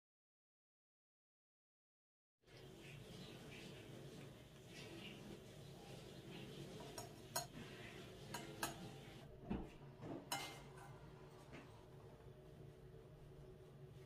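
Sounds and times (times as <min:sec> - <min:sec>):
metal spoon clinking on pot: 0:06.8 - 0:07.6, 0:08.3 - 0:09.1, 0:10.3 - 0:11.0.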